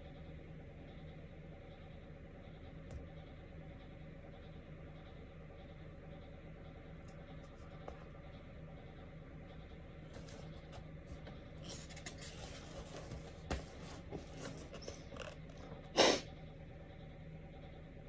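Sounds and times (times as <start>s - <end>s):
faint room hum: 0.0s - 18.0s
book pages rustling: 10.1s - 15.4s.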